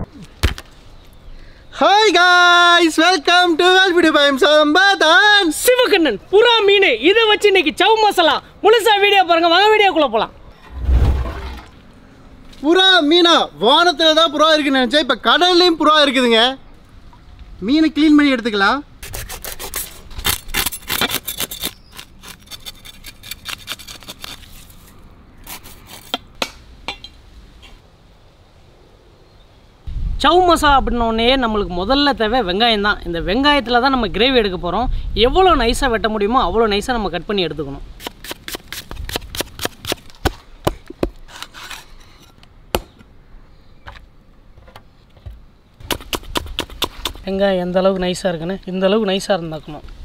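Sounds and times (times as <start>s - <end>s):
cleaver scraping fish scales: 19.0s - 26.3s, 41.3s - 42.4s.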